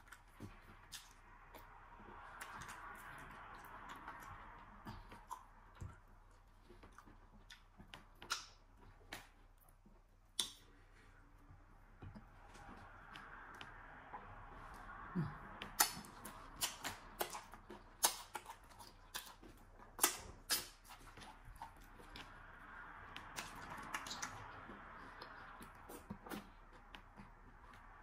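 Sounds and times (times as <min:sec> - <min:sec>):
wet lip smacks and mouth clicks: 0:00.0 - 0:09.4, 0:10.2 - 0:11.1, 0:15.6 - 0:27.3.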